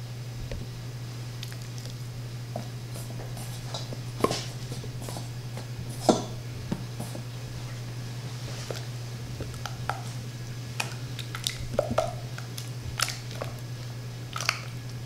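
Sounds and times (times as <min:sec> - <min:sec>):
steady low hum: 0:00.0 - 0:15.0
soft hand handling sounds: 0:02.6 - 0:10.2.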